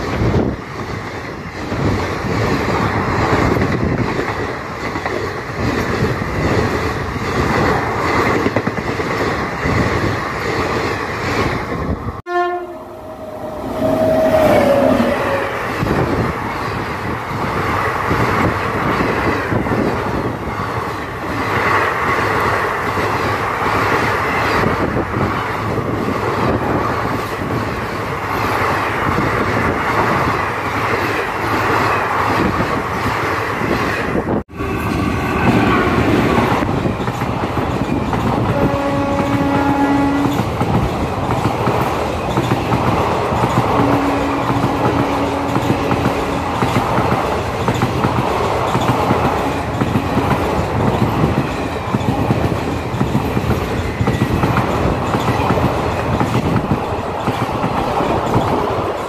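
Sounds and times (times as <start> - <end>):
train wheels rumbling on rails: 0.0 - 59.0
train horn: 12.3 - 16.0, 34.5 - 36.4, 38.4 - 40.5, 43.8 - 46.6.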